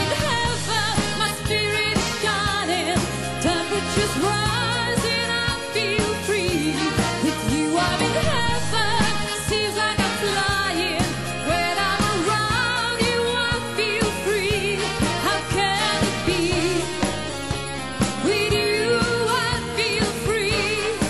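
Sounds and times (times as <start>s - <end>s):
woman singing pop song: 0.0s - 17.4s, 18.0s - 21.0s
band with steady beat: 6.3s - 21.0s.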